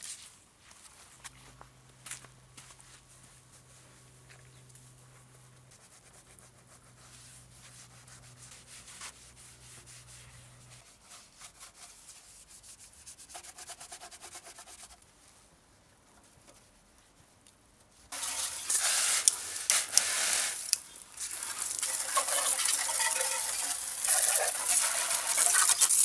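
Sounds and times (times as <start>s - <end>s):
wet sponge scrubbing: 5.7s - 14.9s, 18.1s - 26.0s.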